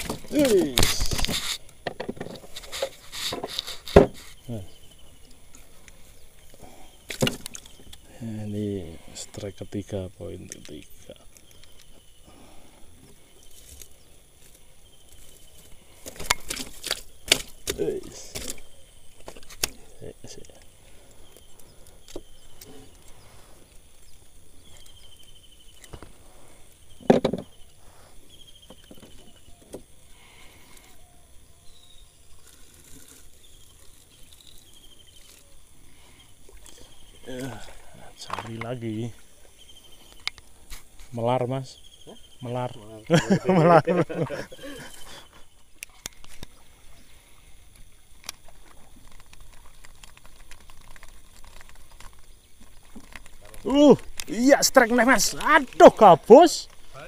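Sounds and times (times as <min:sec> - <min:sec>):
handling clicks and knocks in boat: 0:00.0 - 0:04.4, 0:16.0 - 0:23.2, 0:26.9 - 0:27.6, 0:28.4 - 0:30.0, 0:38.2 - 0:39.0, 0:45.8 - 0:46.6, 0:47.7 - 0:56.8
faint water lapping: 0:00.0 - 0:57.0
loud thump against boat: 0:03.9 - 0:04.2.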